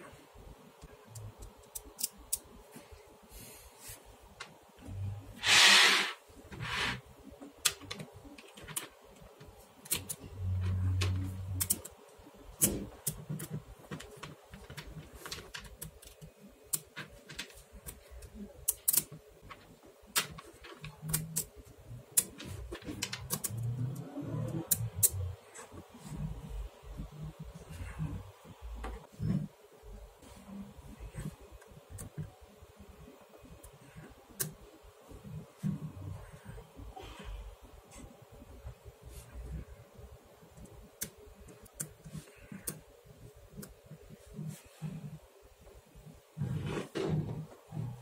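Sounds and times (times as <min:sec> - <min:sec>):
magnetic balls clicking: 0:00.8 - 0:02.6, 0:07.4 - 0:25.4.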